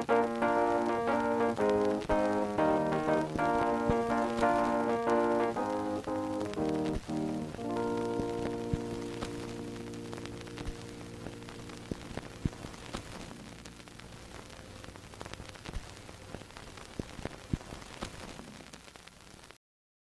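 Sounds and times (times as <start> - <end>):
held music chord: 0.0 - 12.4
old film crackle hiss: 0.0 - 19.6.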